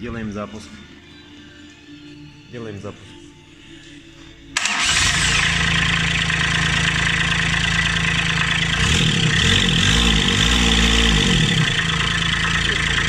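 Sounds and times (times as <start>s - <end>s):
diesel engine starting and running: 4.5s - 13.0s.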